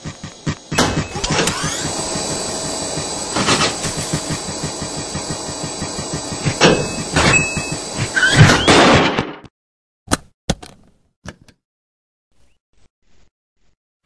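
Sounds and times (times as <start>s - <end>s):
rapid footfalls on treadmill belt: 0.0s - 8.2s
treadmill motor whine: 0.0s - 8.4s.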